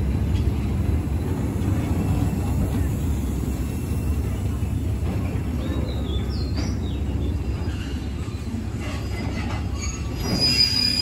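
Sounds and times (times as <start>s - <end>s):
freight train rumbling past: 0.0s - 11.0s
high wheel squeal: 8.8s - 11.0s.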